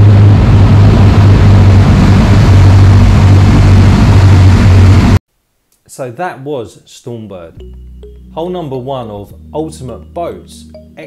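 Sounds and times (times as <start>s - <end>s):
outboard motors droning: 0.0s - 5.2s
wind rushing: 0.0s - 5.2s.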